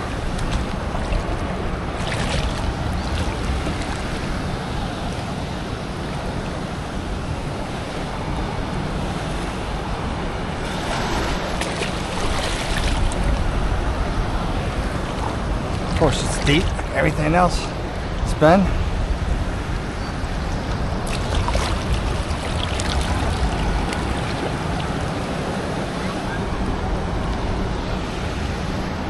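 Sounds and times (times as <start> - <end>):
ocean surf washing: 0.0 - 29.0
wind rumbling on microphone: 0.0 - 29.0.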